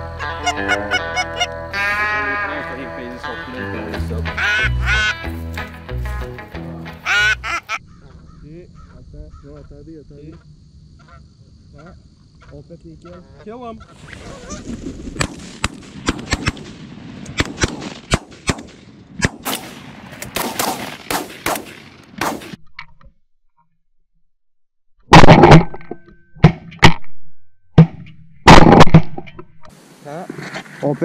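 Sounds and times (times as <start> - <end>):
shotguns firing in rapid volley: 15.1 - 22.6, 28.5 - 29.2
loud close shotgun blasts: 15.2 - 22.6, 28.5 - 29.2.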